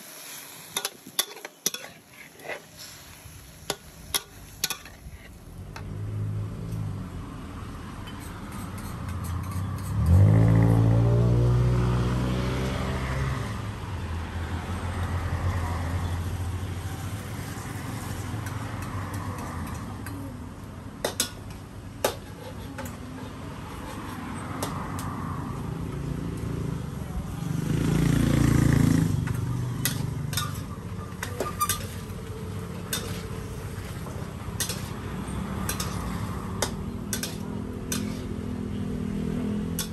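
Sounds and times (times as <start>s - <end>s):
food sizzling in a wok: 0.0s - 11.4s, 14.7s - 20.1s, 27.5s - 39.9s
spatula clinking against wok: 0.8s - 2.0s, 29.8s - 32.3s, 32.9s - 33.3s, 34.1s - 38.4s
vehicle passing: 5.6s - 20.1s, 23.2s - 39.9s.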